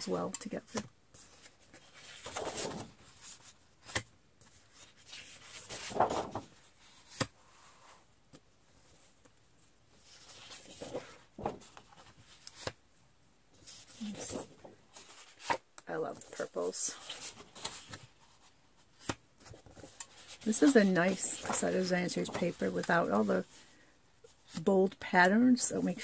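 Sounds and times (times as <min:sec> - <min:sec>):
paper rustling and swishing: 0:01.2 - 0:08.0, 0:16.6 - 0:23.6.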